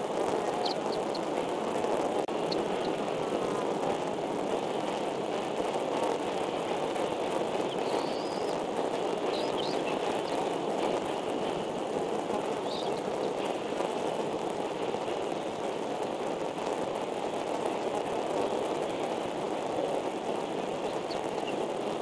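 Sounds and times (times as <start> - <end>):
steady rushing outdoor noise: 0.0 - 22.0
faint high chirps: 0.4 - 1.3, 7.6 - 11.6, 12.6 - 13.3, 20.7 - 21.7.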